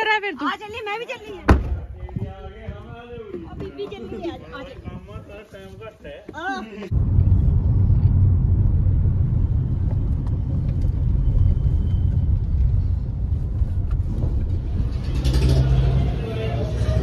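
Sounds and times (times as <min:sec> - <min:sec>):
car engine and road noise: 0:06.9 - 0:17.0.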